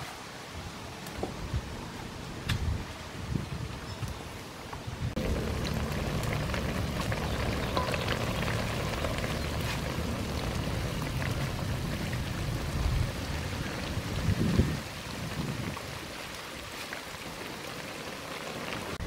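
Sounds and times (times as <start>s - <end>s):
fish sizzling in oil: 5.2s - 14.1s.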